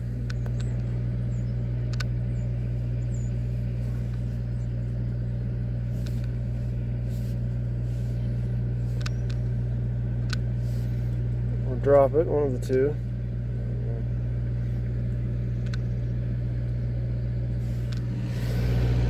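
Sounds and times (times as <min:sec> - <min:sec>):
low mechanical hum: 0:00.0 - 0:19.0
faint clicks: 0:01.9 - 0:02.2, 0:15.6 - 0:15.9.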